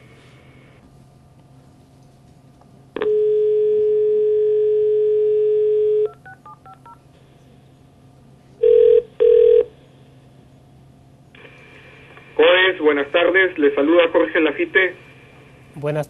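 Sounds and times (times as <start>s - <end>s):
dial tone: 3.0s - 6.9s, 8.6s - 9.7s
keypad tones: 5.9s - 7.0s.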